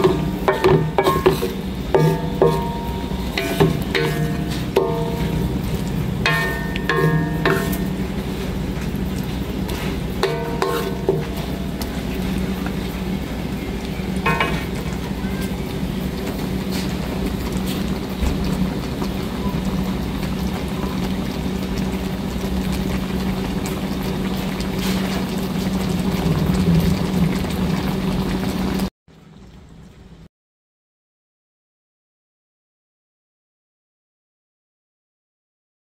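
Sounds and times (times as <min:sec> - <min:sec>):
spatula stirring in a pan: 0:00.0 - 0:13.5, 0:14.2 - 0:18.0
low hum: 0:00.0 - 0:24.7
gravy bubbling and sizzling in a wok: 0:00.0 - 0:30.3.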